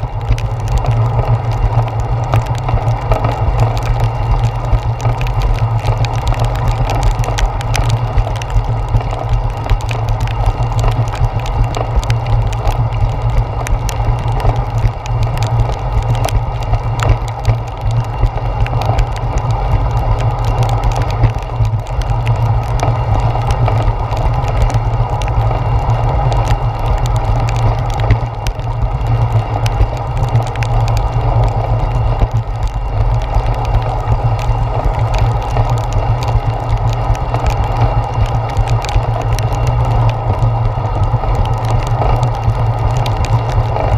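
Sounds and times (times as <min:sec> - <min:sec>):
muffled low rumble of bicycle ride: 0:00.0 - 0:43.9
raindrops tapping on camera: 0:00.0 - 0:43.9.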